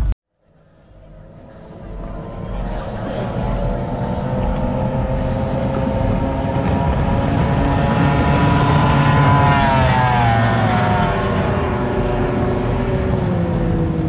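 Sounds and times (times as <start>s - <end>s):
low engine rumble: 0.0s - 14.0s
speedboat passing fast: 0.6s - 14.0s.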